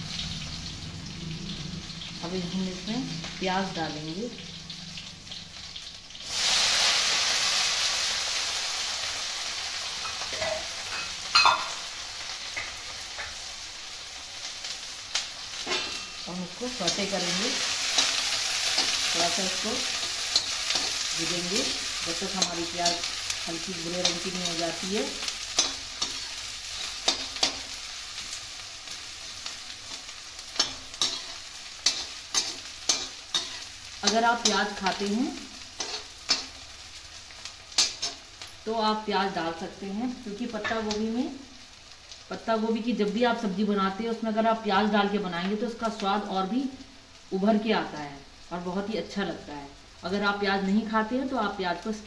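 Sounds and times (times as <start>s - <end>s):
onions sizzling in hot oil: 0.0s - 52.0s
metal spatula scraping a pan: 15.5s - 27.8s, 29.9s - 36.6s.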